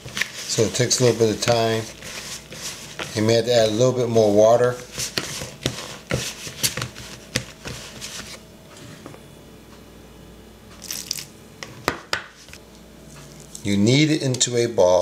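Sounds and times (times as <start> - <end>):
fork scraping dough in bowl: 0.0 - 3.4, 4.8 - 8.4.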